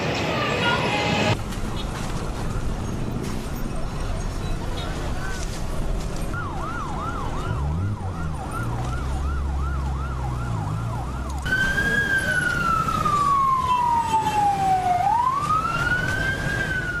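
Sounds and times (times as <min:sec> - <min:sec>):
siren wail: 0:06.4 - 0:17.0
siren yelp: 0:06.4 - 0:17.0.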